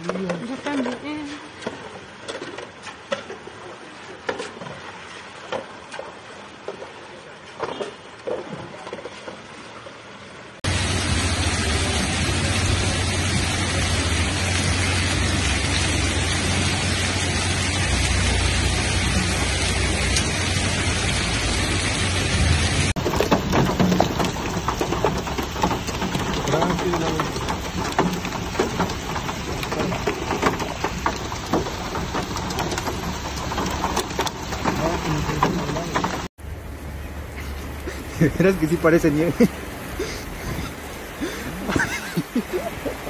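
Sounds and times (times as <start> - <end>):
running water: 0.0 - 43.0
heavy rain pouring: 10.6 - 43.0.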